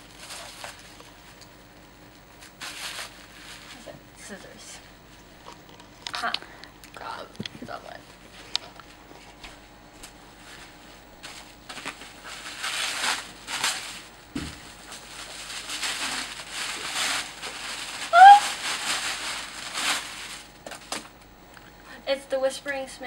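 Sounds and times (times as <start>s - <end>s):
tissue paper rustling: 0.0s - 1.4s, 2.4s - 4.0s, 10.3s - 21.0s
dull thump: 14.3s - 14.6s.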